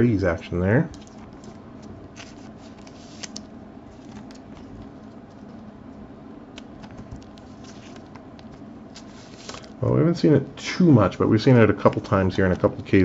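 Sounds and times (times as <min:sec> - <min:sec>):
trading cards clicking and rustling: 0:00.3 - 0:09.9.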